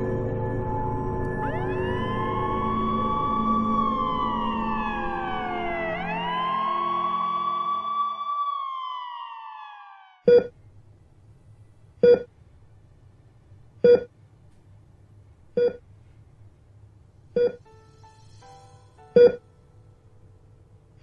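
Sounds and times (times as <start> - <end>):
siren wailing: 0.0 - 10.5
patient monitor beeping: 10.3 - 10.5, 12.0 - 12.3, 13.8 - 14.1, 15.6 - 15.8, 17.4 - 17.6, 19.2 - 19.4.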